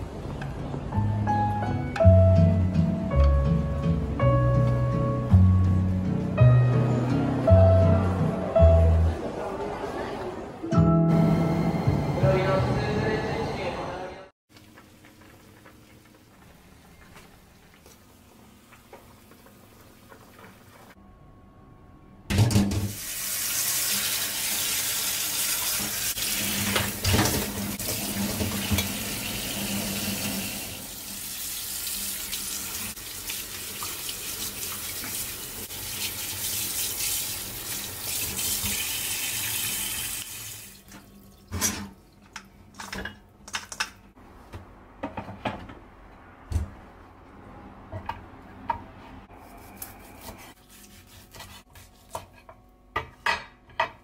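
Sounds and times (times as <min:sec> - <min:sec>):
tap water running into colander: 0:22.9 - 0:41.7.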